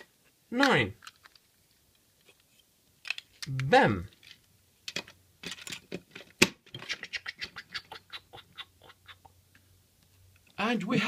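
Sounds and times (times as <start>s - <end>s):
plastic bricks clicking and clattering: 1.0s - 3.5s, 4.1s - 7.0s.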